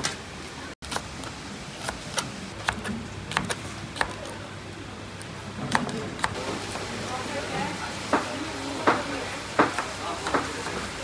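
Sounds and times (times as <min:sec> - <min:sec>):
steady background hum: 0:00.0 - 0:11.0.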